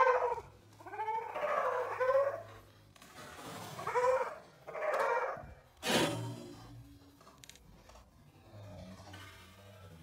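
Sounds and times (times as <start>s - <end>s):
animal high calls: 0.0s - 2.6s, 3.8s - 5.6s.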